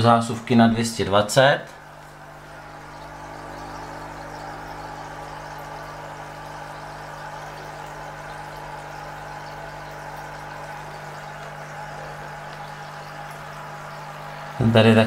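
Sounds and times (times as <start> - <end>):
aquarium air pump humming: 0.0 - 15.0.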